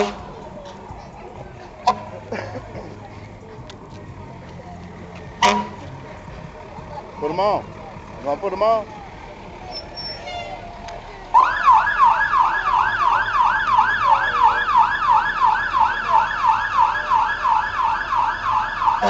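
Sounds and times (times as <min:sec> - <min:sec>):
fire truck siren yelping: 0:10.5 - 0:19.0.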